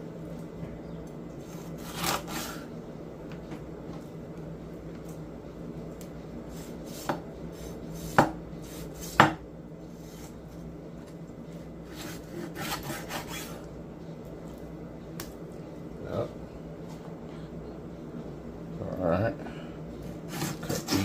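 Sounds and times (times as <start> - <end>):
steady low hum: 0.0 - 21.0
knife chopping on wooden board: 6.9 - 7.2, 8.0 - 9.4.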